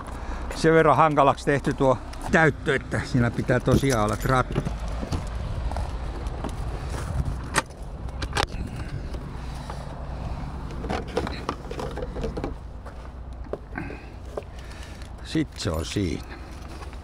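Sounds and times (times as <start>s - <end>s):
steady low rumble: 0.0s - 17.0s
plastic rattling and rustling: 10.7s - 15.2s.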